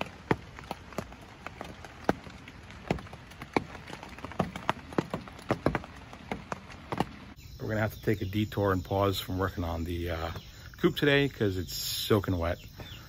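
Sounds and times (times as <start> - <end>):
raindrops tapping on fabric roof: 0.0 - 7.4
soft hiss of rain: 0.0 - 7.4.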